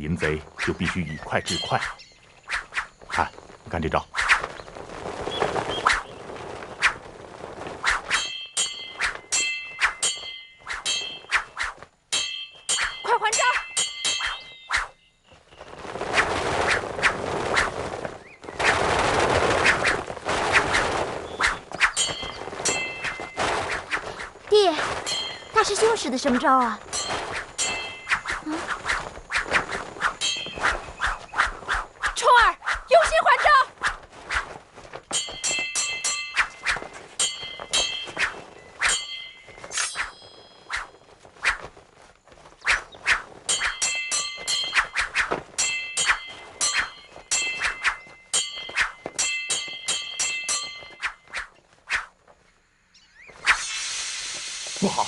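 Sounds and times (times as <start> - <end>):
sword swings whooshing: 7.8 - 15.0, 18.6 - 24.4, 26.3 - 34.6, 35.2 - 41.8, 42.6 - 52.2, 53.3 - 53.8
metal swords clanging: 8.1 - 15.0, 21.8 - 24.3, 24.9 - 29.4, 30.0 - 31.4, 35.1 - 40.9, 43.5 - 51.6.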